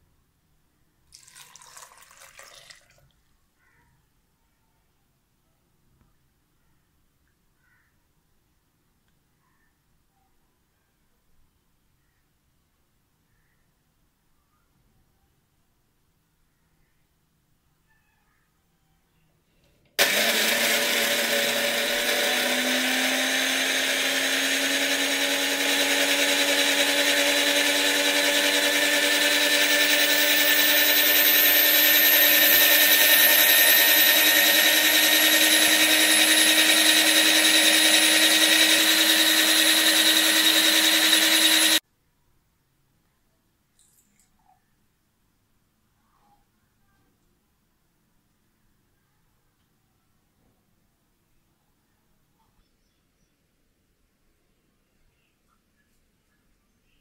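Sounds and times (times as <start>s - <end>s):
electric blender running: 20.0s - 41.8s.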